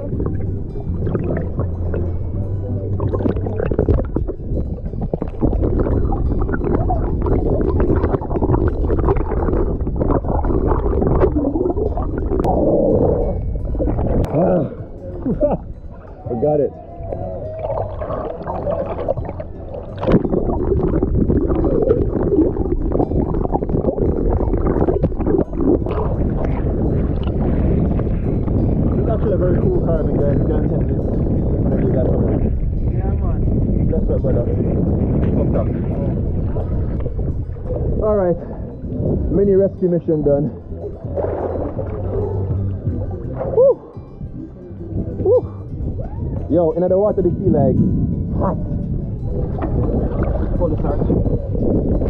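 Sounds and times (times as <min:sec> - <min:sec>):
seawater sloshing and gurgling: 0:00.0 - 0:52.0
small waves washing over: 0:31.6 - 0:52.0.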